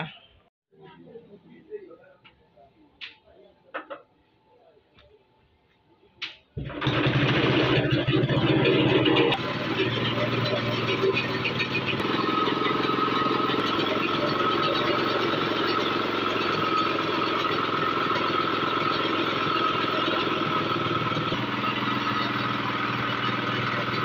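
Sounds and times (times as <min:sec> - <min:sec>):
grinding mill whine: 0:06.6 - 0:24.0
small petrol engine running: 0:06.6 - 0:24.0.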